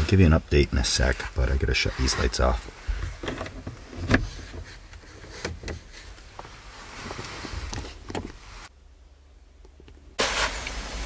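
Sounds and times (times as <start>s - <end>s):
clicks and knocks in car cabin: 7.6s - 8.4s.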